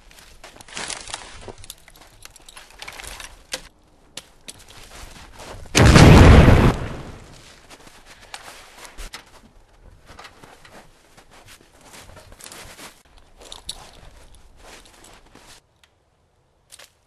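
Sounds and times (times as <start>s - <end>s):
deep loud boom: 5.8s - 7.2s
sharp cracks: 5.8s - 7.4s.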